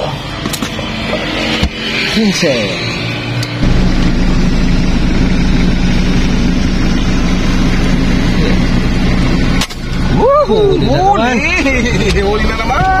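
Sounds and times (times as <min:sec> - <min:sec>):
vehicle engine idling: 0:03.6 - 0:13.0.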